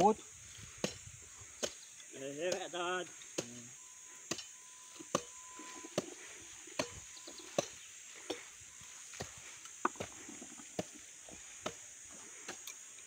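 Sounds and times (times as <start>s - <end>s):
insects buzzing: 0.0s - 13.0s
footsteps on dry soil: 5.0s - 12.6s.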